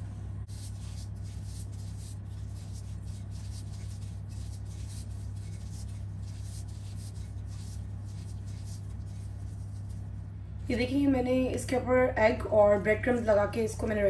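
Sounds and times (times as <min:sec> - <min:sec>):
low hum: 0:00.0 - 0:11.4
breadcrumbs rustling: 0:00.5 - 0:10.3.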